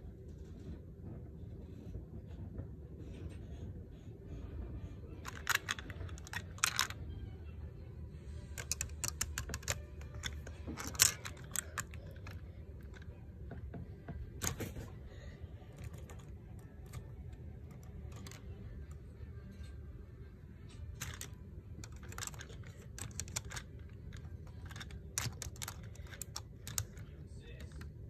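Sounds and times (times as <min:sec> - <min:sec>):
plastic bricks clicking: 0:05.2 - 0:07.0, 0:08.5 - 0:13.1, 0:15.8 - 0:18.4, 0:21.0 - 0:27.9.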